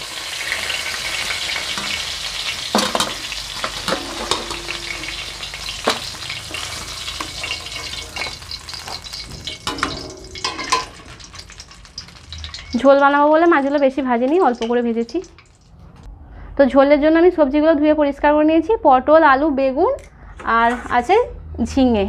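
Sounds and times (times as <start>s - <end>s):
fish sizzling in hot oil: 0.0s - 15.8s
metal spatula scraping a pan: 0.6s - 13.0s.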